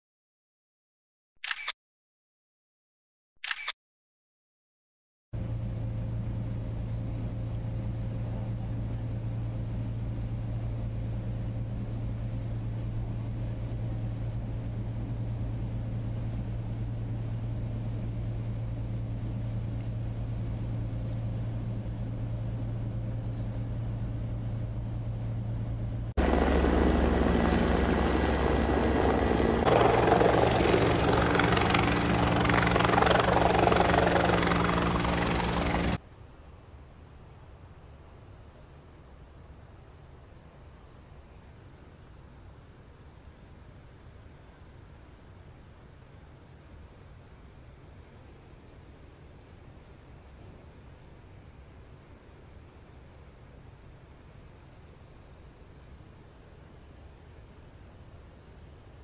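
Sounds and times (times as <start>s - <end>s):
helicopter flying close by: 5.4s - 36.0s
low engine drone: 5.4s - 36.0s
high steady whine: 7.2s - 36.0s.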